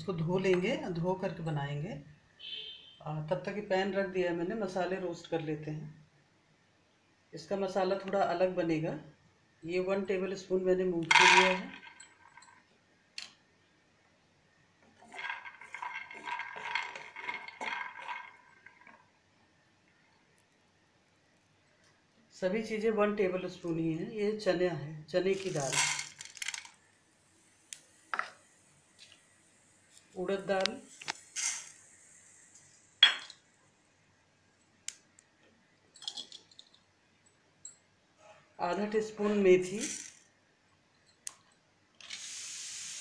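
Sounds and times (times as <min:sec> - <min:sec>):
peanuts rattling in metal pan: 0:11.0 - 0:12.1, 0:15.0 - 0:19.0, 0:25.2 - 0:26.8, 0:31.4 - 0:31.8, 0:39.6 - 0:40.2.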